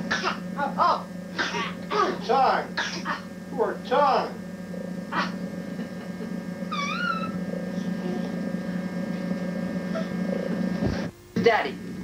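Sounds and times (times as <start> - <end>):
steady low hum: 0.0 - 12.0
baby squealing: 6.7 - 7.4.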